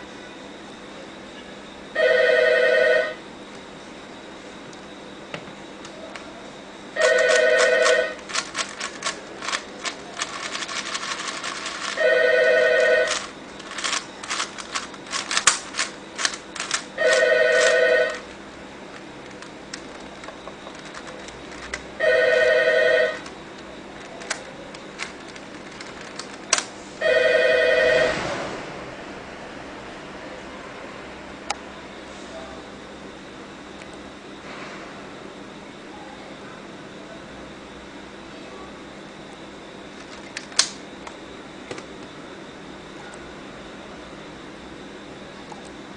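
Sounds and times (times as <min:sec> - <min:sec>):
telephone ringing: 0:02.0 - 0:03.2, 0:07.0 - 0:08.7, 0:10.2 - 0:14.6, 0:16.6 - 0:18.3, 0:20.8 - 0:23.3, 0:27.0 - 0:28.1
puzzle cube clicking: 0:13.1 - 0:18.2.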